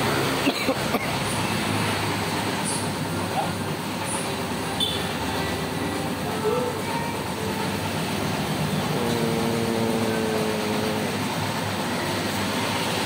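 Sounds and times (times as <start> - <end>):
tyre shop machinery noise: 0.0 - 13.0
held hum dipping in pitch: 8.3 - 11.6.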